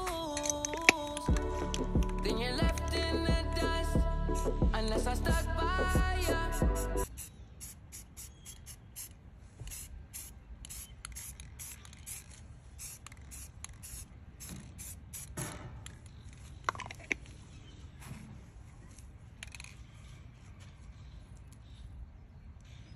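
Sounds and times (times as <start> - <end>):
spray can hissing bursts: 4.2 - 4.6, 6.1 - 15.4.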